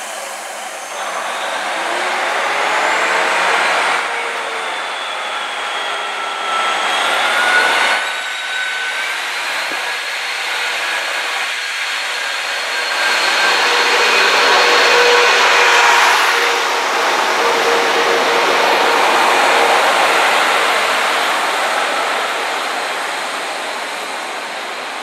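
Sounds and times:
diesel train engine whine and rumble: 0.0 - 25.0.

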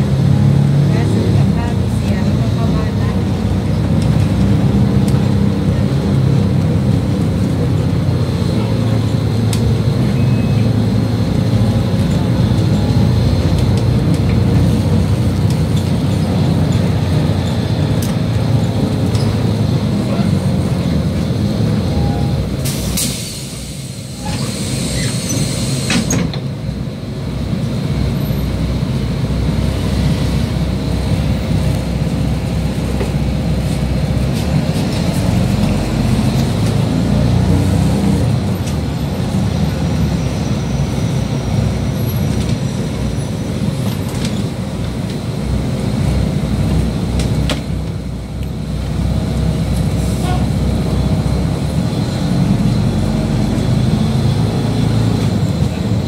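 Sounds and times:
bus engine and road rumble: 0.0 - 56.0
air hiss: 22.6 - 26.1.

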